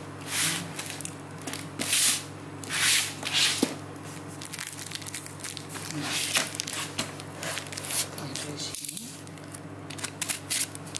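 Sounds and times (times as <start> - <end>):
packing tape ripping off cardboard: 9.9 - 10.9.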